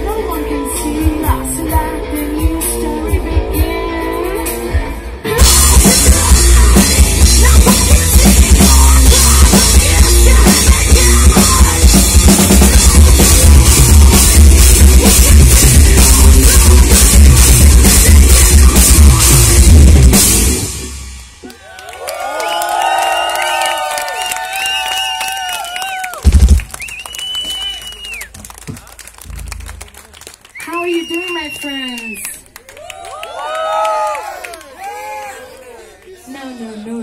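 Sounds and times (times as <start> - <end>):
live metal band playing: 0.0 - 21.4.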